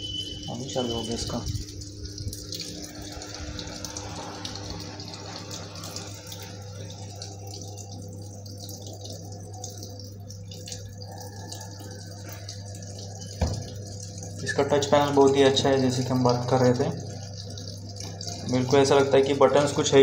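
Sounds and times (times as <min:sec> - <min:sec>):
water running into washing machine: 0:00.0 - 0:20.0.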